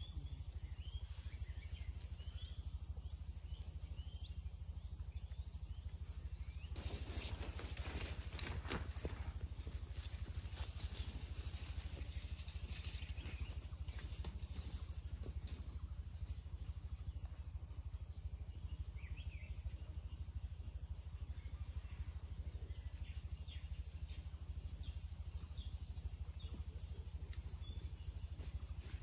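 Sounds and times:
faint bird chirps: 0:00.0 - 0:09.2
low throbbing hum: 0:00.0 - 0:29.0.

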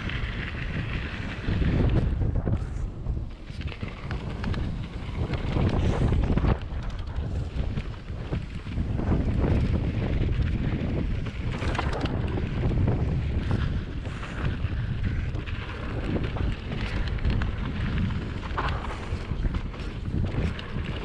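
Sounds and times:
bike clicking and rattling: 0:00.0 - 0:21.0
bike tyres rumbling on gravel: 0:00.0 - 0:21.0
wind buffeting microphone: 0:00.0 - 0:21.0.

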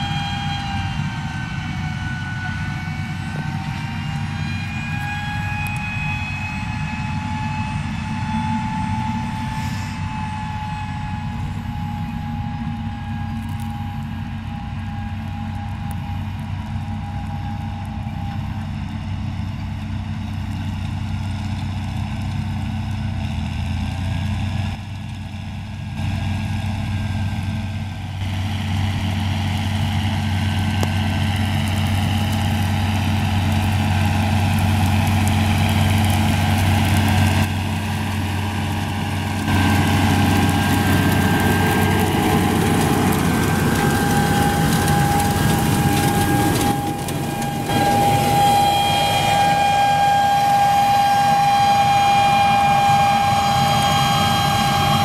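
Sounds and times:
thin steady whine: 0:00.0 - 0:19.2, 0:35.2 - 0:55.0
tractor diesel engine under load: 0:00.0 - 0:55.0.

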